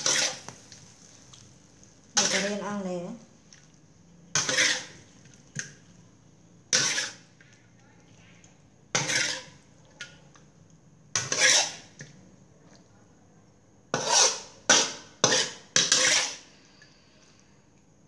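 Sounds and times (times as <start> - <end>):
metal spatula scraping wok: 0.0 - 0.7, 2.2 - 2.8, 4.3 - 5.1, 6.7 - 7.4, 8.9 - 9.7, 11.1 - 12.0, 13.9 - 16.5.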